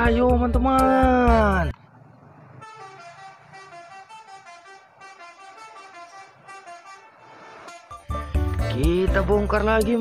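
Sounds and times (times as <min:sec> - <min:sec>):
bus horn playing a tune: 0:02.6 - 0:08.8.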